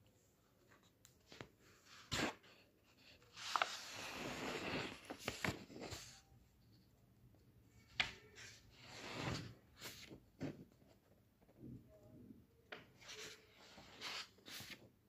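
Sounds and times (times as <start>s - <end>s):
book pages turning: 0.6s - 6.2s, 7.8s - 11.2s, 12.7s - 14.9s.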